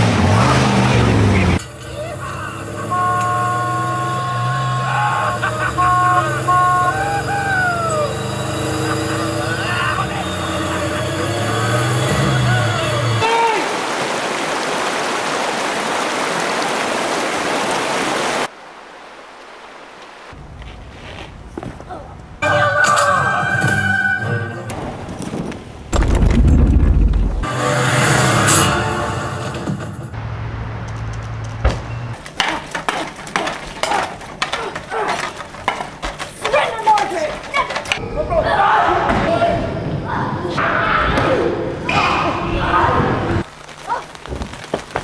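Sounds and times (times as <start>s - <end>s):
swords clashing: 32.2s - 38.0s.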